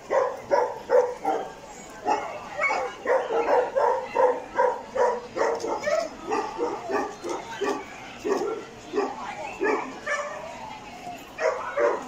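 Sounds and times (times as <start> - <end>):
dog barking rapidly: 0.1 - 1.5.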